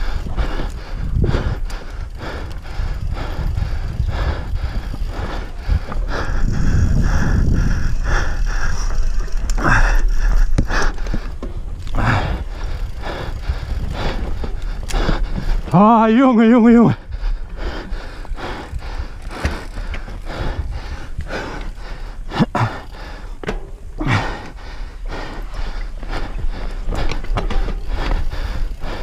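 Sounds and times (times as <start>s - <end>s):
wind on microphone: 0.0s - 15.8s
bike frame and chain rattling: 0.0s - 29.0s
tyres scrabbling on dirt: 26.0s - 28.8s.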